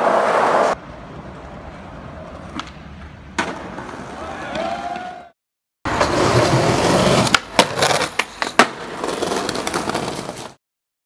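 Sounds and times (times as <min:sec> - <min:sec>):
skateboard wheels rolling on pavement: 0:00.0 - 0:05.3, 0:05.9 - 0:10.6
skateboard clacks: 0:05.9 - 0:10.6.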